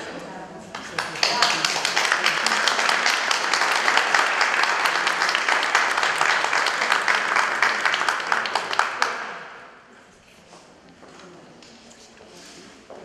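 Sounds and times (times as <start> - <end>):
audience applauding: 0.8 - 9.6.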